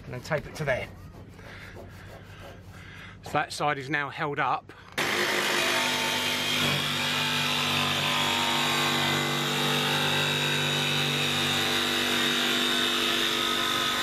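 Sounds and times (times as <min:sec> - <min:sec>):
jigsaw cutting sheet metal: 0:05.0 - 0:14.0.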